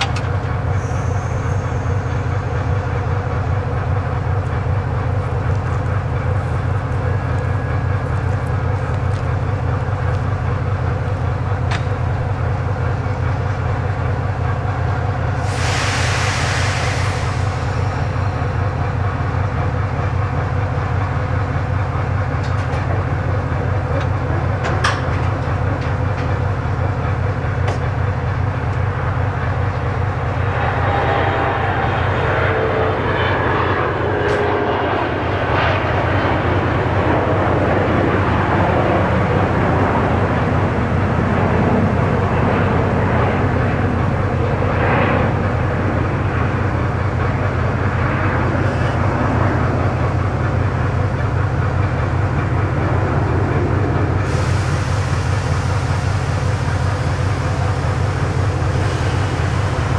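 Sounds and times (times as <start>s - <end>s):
diesel locomotive engine idling: 0.0s - 59.9s.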